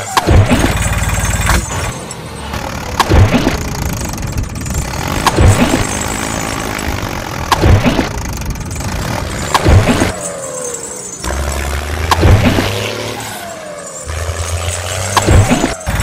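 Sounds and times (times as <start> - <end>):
vehicle engine revving: 0.0 - 16.0.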